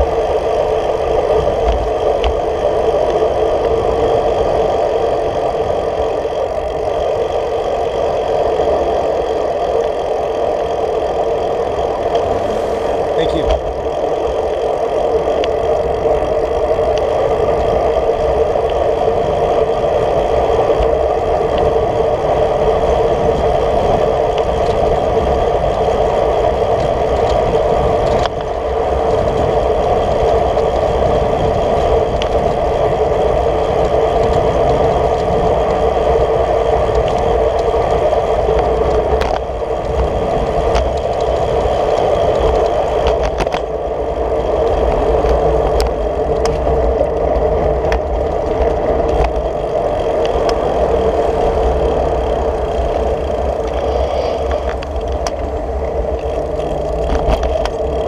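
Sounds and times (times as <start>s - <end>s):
road rumble: 0.0s - 58.0s
wind: 0.0s - 58.0s
clicks and rattles from bumps: 38.5s - 43.7s, 53.0s - 58.0s.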